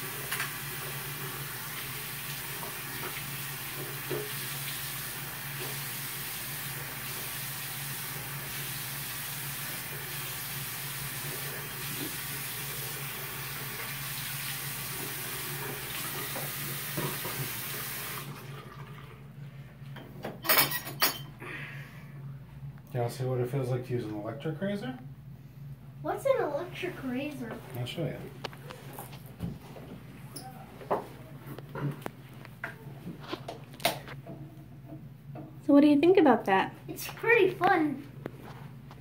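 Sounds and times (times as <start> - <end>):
faucet running into sink: 0.0 - 19.2.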